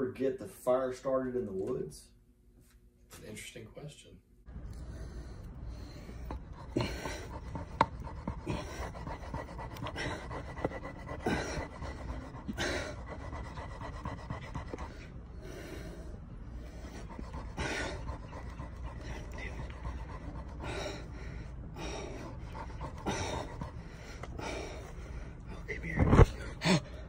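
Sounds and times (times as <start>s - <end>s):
man panting heavily: 4.8s - 27.0s
wood scraping on wood: 5.9s - 15.1s.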